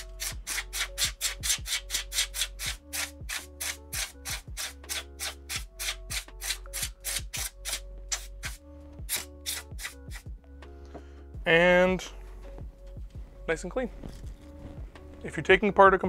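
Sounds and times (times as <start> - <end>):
background music with steady beat: 0.0 - 16.0.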